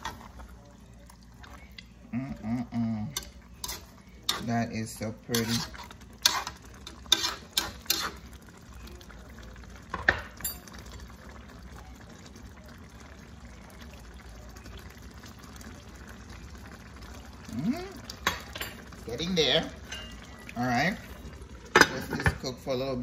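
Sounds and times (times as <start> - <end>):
stew bubbling in a pot: 0.0 - 23.0.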